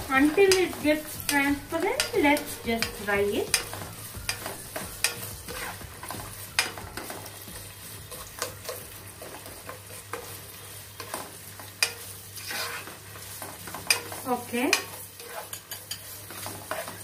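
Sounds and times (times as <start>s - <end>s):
onions sizzling in hot oil: 0.0s - 17.0s
spatula scraping a pot: 0.2s - 7.1s, 11.8s - 17.0s.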